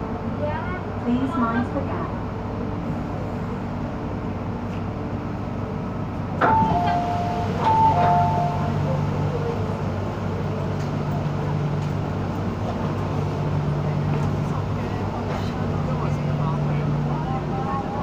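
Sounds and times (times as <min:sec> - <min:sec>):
train car rumble: 0:00.0 - 0:18.0
two-note door chime: 0:06.4 - 0:08.8.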